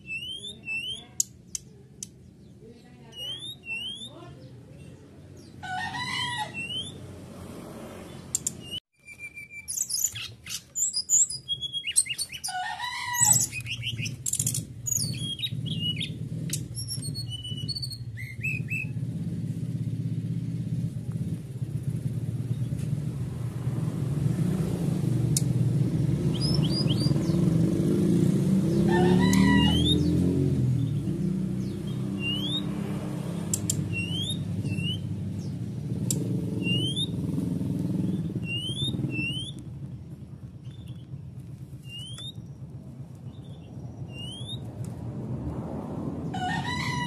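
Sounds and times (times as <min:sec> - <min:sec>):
bird chirps and whistles: 0:00.0 - 0:01.2, 0:03.1 - 0:04.2, 0:06.5 - 0:07.0, 0:08.4 - 0:12.6, 0:13.2 - 0:19.0, 0:26.3 - 0:27.4, 0:29.3 - 0:30.1, 0:31.6 - 0:32.8, 0:33.6 - 0:35.2, 0:36.5 - 0:37.2, 0:38.0 - 0:39.7, 0:41.8 - 0:42.5, 0:43.5 - 0:44.7.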